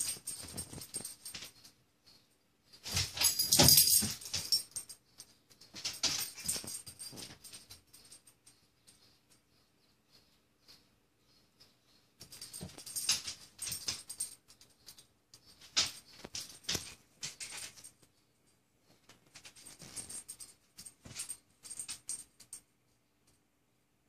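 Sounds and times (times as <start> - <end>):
dog collar tags jingling: 0.0 - 1.7, 2.8 - 9.2, 12.2 - 17.9, 19.4 - 22.6.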